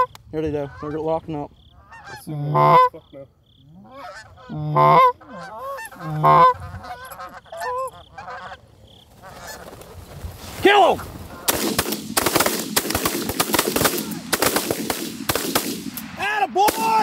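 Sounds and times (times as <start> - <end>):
geese honking: 0.0 - 9.9, 10.7 - 11.6.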